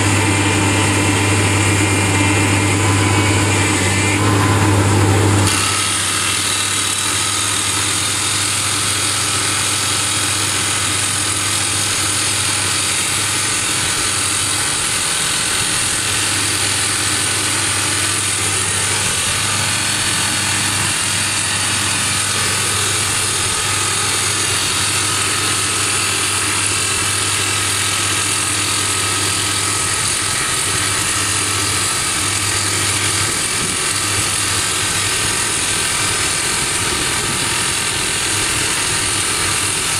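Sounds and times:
drill rig engine humming: 0.0s - 39.9s
rapid hydraulic hammering on rock: 0.0s - 39.9s.

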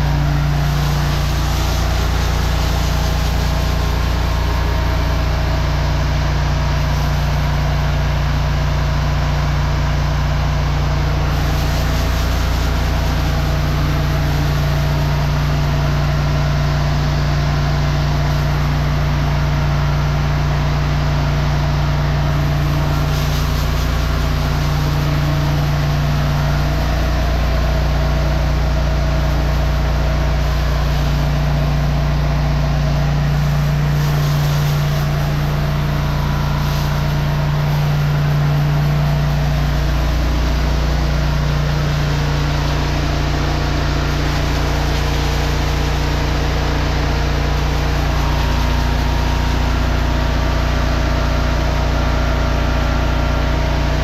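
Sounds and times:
engine droning: 0.0s - 54.0s
water spraying on concrete: 0.0s - 54.0s.

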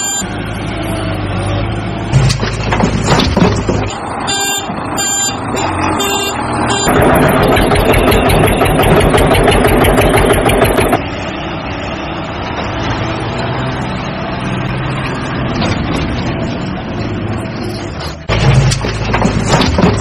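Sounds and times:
tractor engine chugging: 6.6s - 11.0s.

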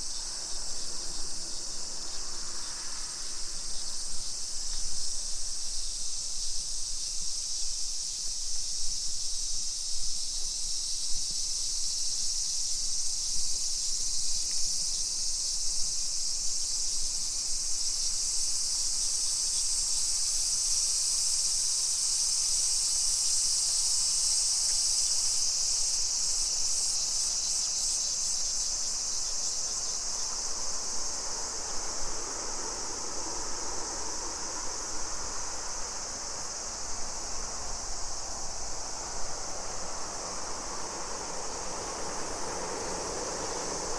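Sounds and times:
cicadas shrilling: 0.0s - 43.9s.

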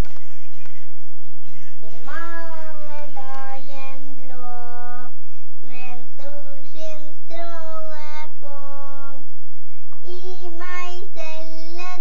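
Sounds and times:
child singing: 2.0s - 9.2s, 10.0s - 12.0s.

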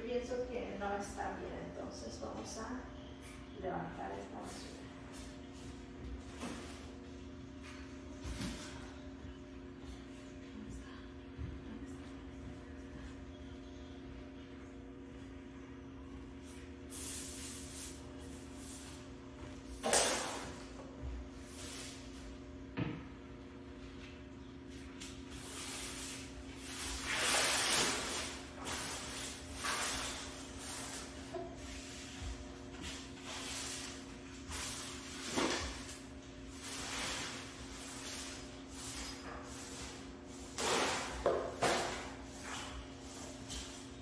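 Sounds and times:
faint steady hum: 0.0s - 44.0s
broom sweeping: 16.4s - 19.1s, 21.4s - 22.2s, 25.0s - 43.8s.

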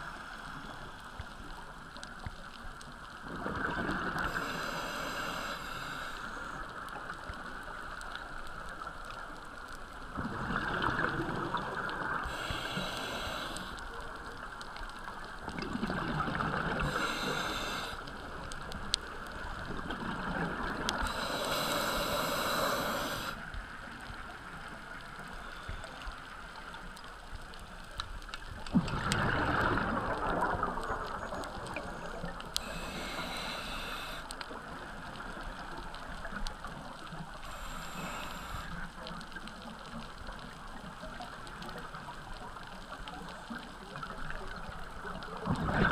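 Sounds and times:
exhaled bubbles gurgling: 3.2s - 6.5s, 10.1s - 13.7s, 15.2s - 23.4s, 28.6s - 36.9s, 43.4s - 45.9s
diver breathing through regulator: 4.2s - 6.6s, 12.2s - 13.8s, 16.7s - 18.1s, 21.0s - 23.4s, 32.6s - 34.3s, 37.4s - 38.8s.

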